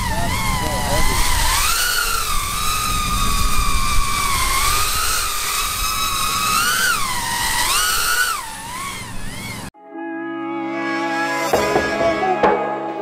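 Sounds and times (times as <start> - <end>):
drone motors whining: 0.0 - 9.7.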